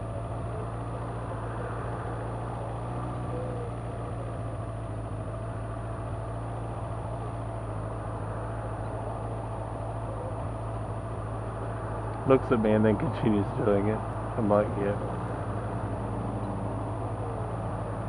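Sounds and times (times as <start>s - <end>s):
engines idling: 0.0s - 18.0s
faint passing traffic: 0.0s - 18.0s.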